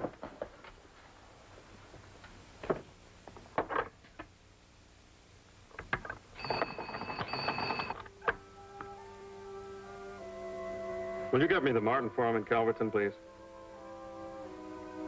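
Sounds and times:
telephone bell ringing: 6.4s - 8.0s
soft music: 8.0s - 15.0s.

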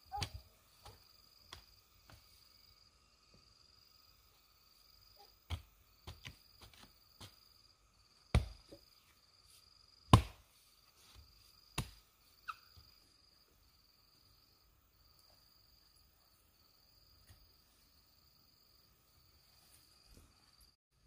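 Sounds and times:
insects trilling: 0.0s - 20.8s
hand tool chopping blows: 10.1s - 10.4s.

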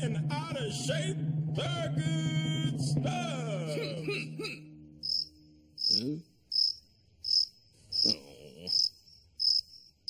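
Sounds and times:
cricket chirping: 5.0s - 10.0s.

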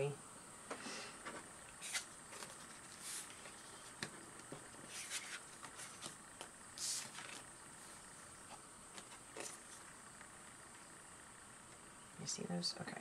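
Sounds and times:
cards sliding: 1.8s - 4.1s, 4.8s - 7.5s.

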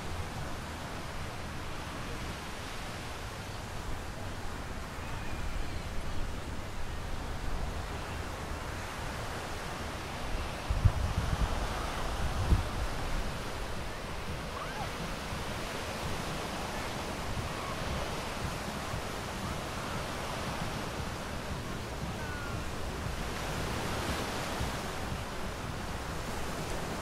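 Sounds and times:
waves breaking on beach: 0.0s - 27.0s
wind buffeting microphone: 0.0s - 27.0s.

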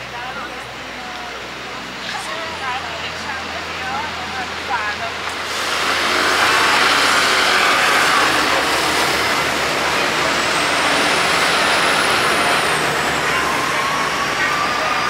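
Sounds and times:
vehicle passing close by: 5.3s - 15.0s.

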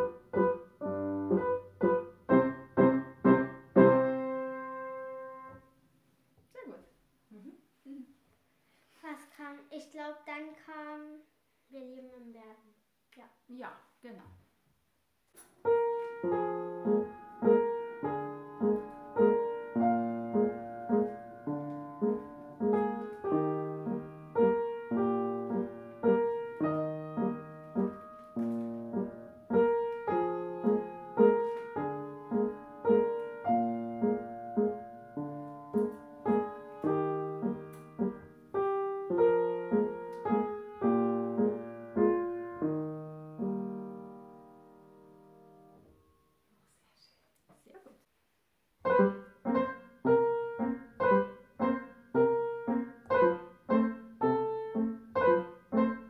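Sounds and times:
upright piano chords and melody: 0.0s - 5.8s, 15.6s - 46.2s, 48.8s - 56.0s.

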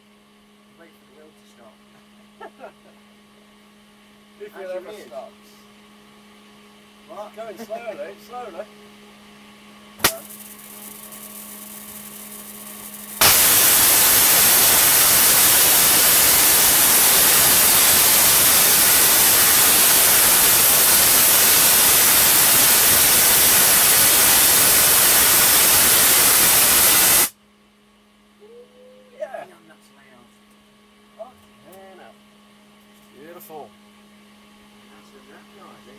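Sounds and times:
sharp click: 10.0s - 10.3s
faint hiss: 10.0s - 27.3s
tesla coil crackling buzz: 10.0s - 27.3s.

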